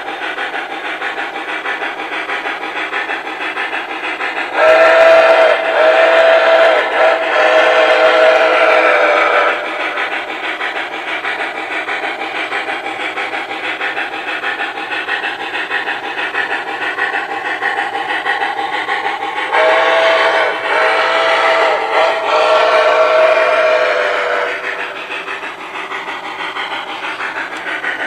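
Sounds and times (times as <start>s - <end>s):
rhythmic steam chuff: 0.0s - 28.0s
steam whistle blasts: 4.6s - 9.7s, 19.5s - 24.7s.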